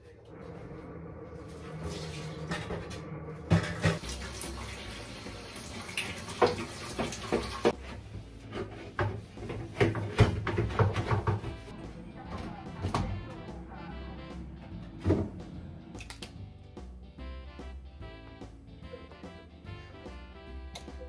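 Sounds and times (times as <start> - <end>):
tap water running: 1.4 - 8.0
metal clattering against sink: 2.4 - 4.2, 8.6 - 11.6.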